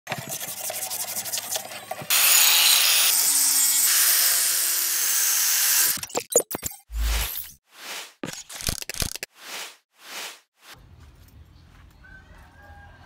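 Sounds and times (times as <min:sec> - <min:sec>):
angle grinder grinding metal: 0:00.6 - 0:06.0.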